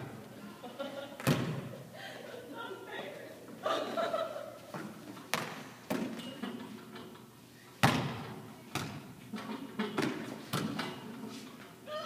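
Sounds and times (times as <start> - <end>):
tetherball slaps in a gym: 1.2 - 1.8, 4.7 - 6.4, 7.8 - 11.0.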